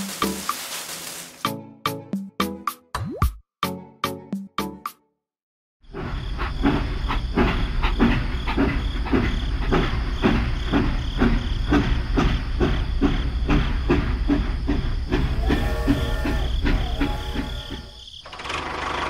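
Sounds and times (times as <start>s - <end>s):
hiss: 0.0s - 1.5s
toy train motor rumble: 13.9s - 19.0s.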